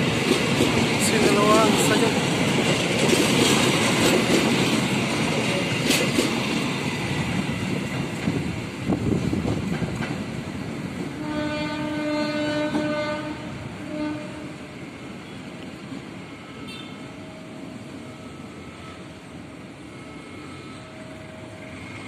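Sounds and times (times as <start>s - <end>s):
train wheels clicking over rail joints: 0.0s - 11.2s
train horn: 11.2s - 14.7s, 16.6s - 17.0s.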